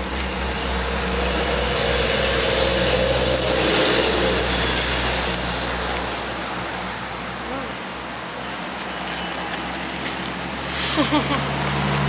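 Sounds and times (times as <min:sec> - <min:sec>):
motor vehicle passing: 0:00.0 - 0:08.4.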